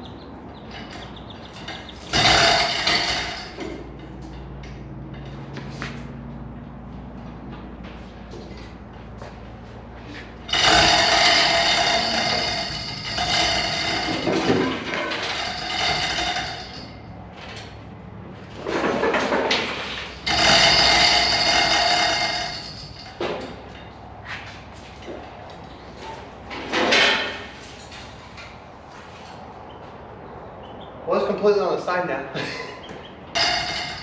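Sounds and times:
metal scraping and screeching: 0.5 - 5.5, 10.1 - 17.8, 18.4 - 28.0, 33.4 - 34.0.

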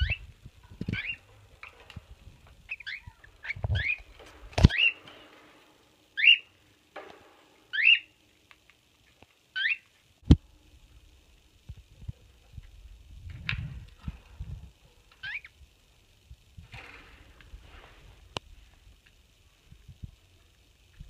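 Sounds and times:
cockatiels chirping: 0.0 - 0.2, 0.9 - 1.8, 2.7 - 5.0, 6.2 - 6.5, 7.7 - 8.1, 9.5 - 9.9, 15.2 - 15.6.

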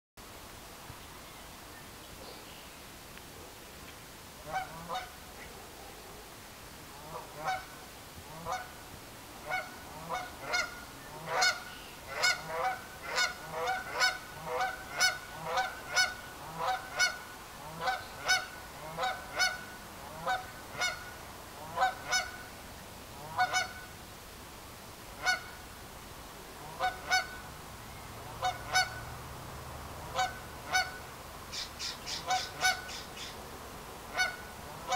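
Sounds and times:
duck calling: 4.5 - 5.1, 7.0 - 7.7, 8.3 - 8.7, 9.5 - 22.4, 23.2 - 23.8, 26.6 - 27.4, 28.3 - 29.0, 30.1 - 33.4, 34.1 - 34.9.

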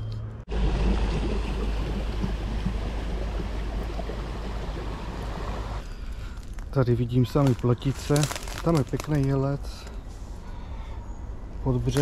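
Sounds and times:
boat engine low rumble: 0.4 - 5.9
boat wake rushing: 0.5 - 5.8.

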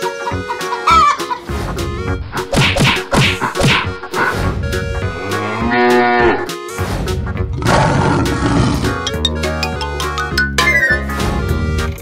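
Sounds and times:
cartoon background music: 0.0 - 12.0
cow mooing: 5.0 - 6.6.

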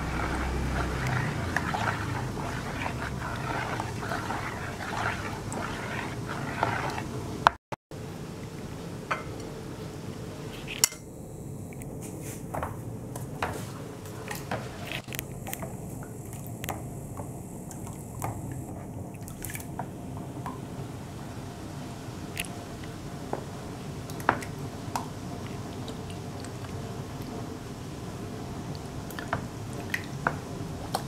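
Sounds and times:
low hum: 0.0 - 8.2.

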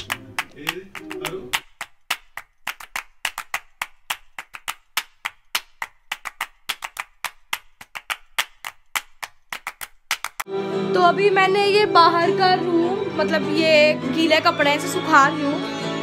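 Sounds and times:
rapid hand claps: 0.0 - 10.5.

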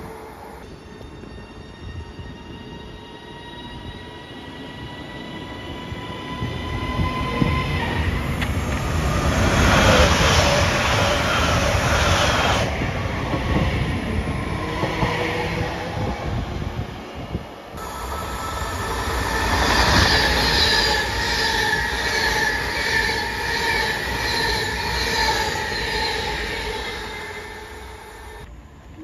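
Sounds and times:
high steady train whine: 0.0 - 29.0
train rushing past: 2.0 - 28.6.

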